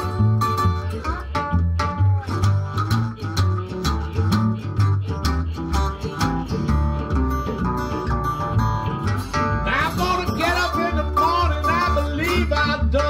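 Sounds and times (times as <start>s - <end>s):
resonator guitar blues riff: 0.0s - 13.0s
washtub bass low notes: 0.0s - 13.0s.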